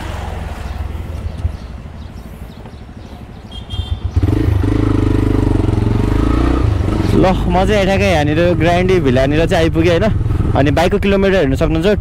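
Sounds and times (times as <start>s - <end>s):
motorcycle engine idling and revving: 0.0s - 12.0s.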